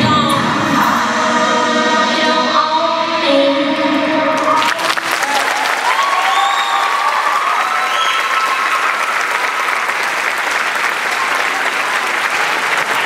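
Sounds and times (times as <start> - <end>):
audience applauding: 4.4 - 13.0
cheers and whistles: 5.2 - 13.0.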